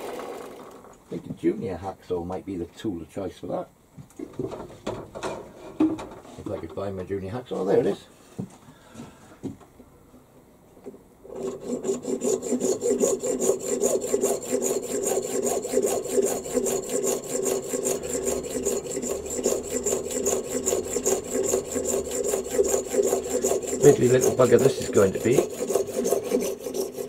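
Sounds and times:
hacksaw cutting through brass: 11.3s - 27.0s.

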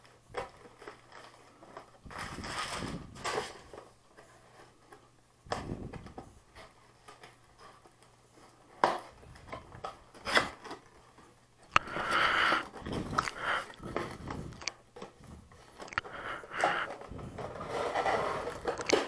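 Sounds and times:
cardboard rubbing and scraping: 16.4s - 18.9s.

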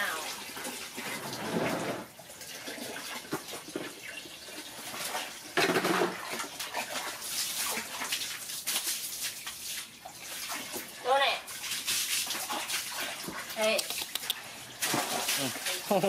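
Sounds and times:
hose water running into bucket: 0.0s - 16.0s
water splashing: 6.1s - 16.0s.

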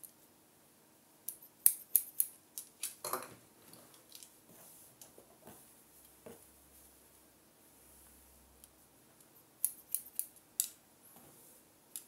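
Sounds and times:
scissors snipping hair: 1.3s - 2.3s, 9.6s - 10.7s.

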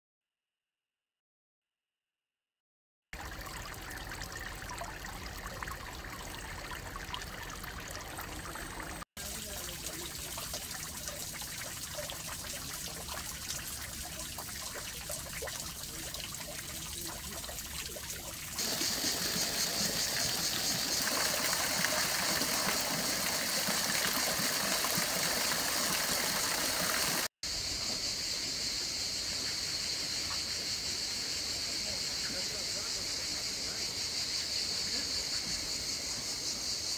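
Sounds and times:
water trickling into a pool: 3.1s - 27.4s.

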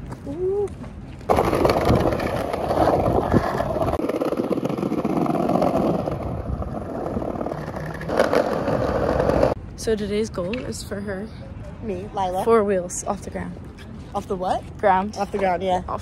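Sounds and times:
skateboard wheels rolling on paving: 0.0s - 10.8s.

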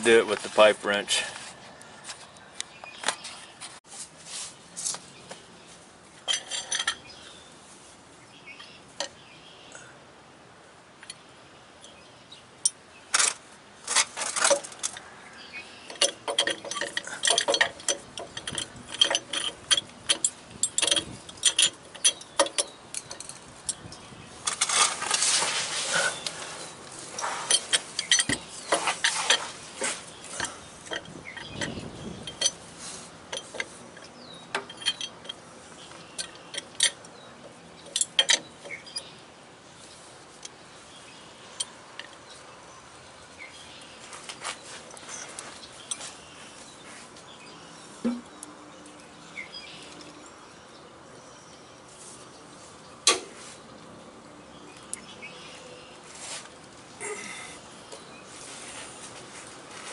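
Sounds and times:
pipe wrench clinking on metal: 6.2s - 7.1s, 15.9s - 25.0s, 27.1s - 35.4s, 36.1s - 39.1s
wrench scraping metal: 6.3s - 7.1s, 15.9s - 37.1s.

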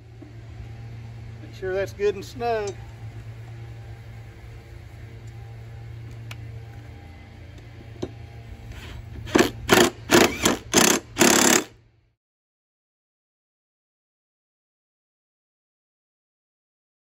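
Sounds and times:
low steady hum: 0.0s - 12.2s
impact wrench hammering: 9.3s - 11.7s.

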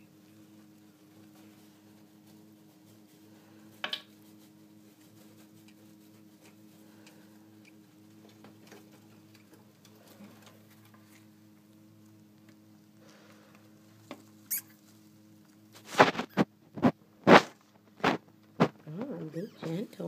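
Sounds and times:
steady low hum: 0.0s - 20.0s
paper bedding rustling: 14.8s - 16.5s.

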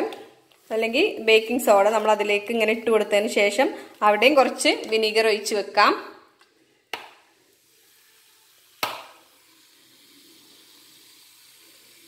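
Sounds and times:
vinegar fizzing on baking soda: 7.3s - 12.0s.

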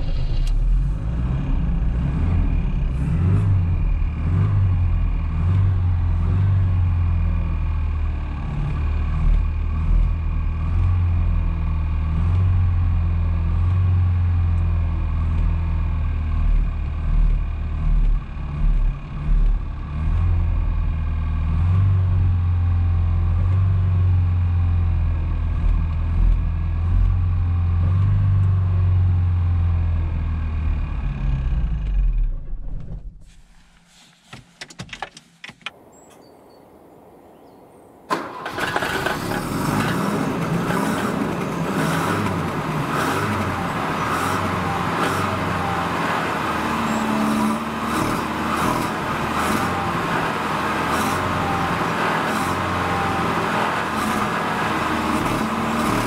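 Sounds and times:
car engine idling: 38.0s - 56.0s.

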